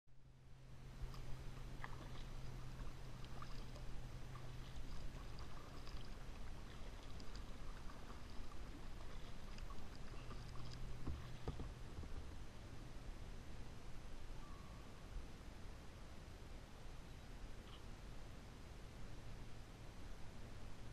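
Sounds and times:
steady low hum: 0.1s - 20.9s
water lapping along hull: 0.8s - 12.8s
kayak paddle strokes: 1.0s - 12.4s.

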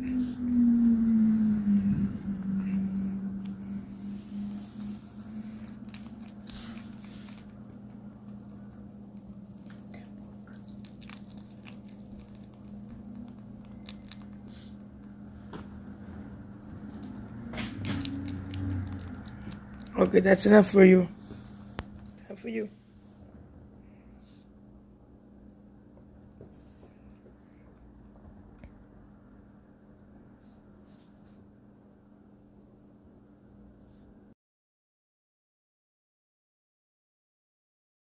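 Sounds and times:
steady low hum: 0.0s - 34.4s
rabbit chewing: 1.7s - 23.3s.

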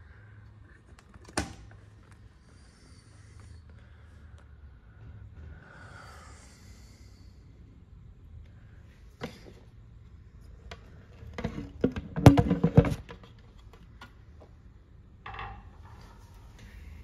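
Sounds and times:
plastic knocks and clatter: 10.6s - 14.0s.

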